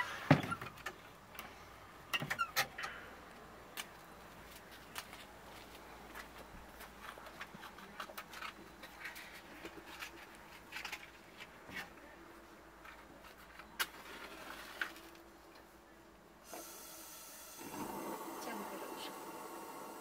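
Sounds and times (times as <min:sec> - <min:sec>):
gas lantern hissing: 0:16.4 - 0:20.0.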